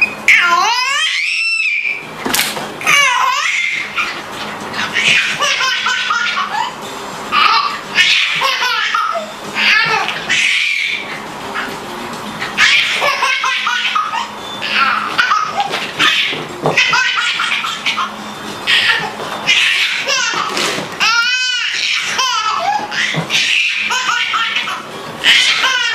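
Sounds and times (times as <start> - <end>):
high squeal of laughter: 0.0 - 2.1, 4.9 - 6.8, 12.6 - 25.9
baby laughing: 2.8 - 11.8, 12.4 - 25.9.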